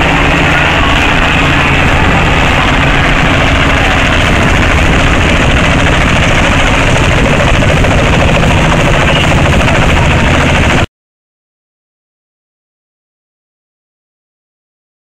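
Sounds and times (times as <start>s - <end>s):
helicopter drone: 0.0s - 10.9s.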